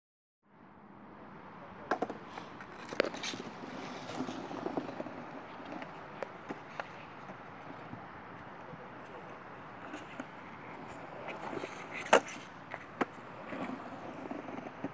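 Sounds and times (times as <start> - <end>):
skateboard wheels rolling on pavement: 0.8 - 14.9
skateboard clacks: 1.8 - 14.9.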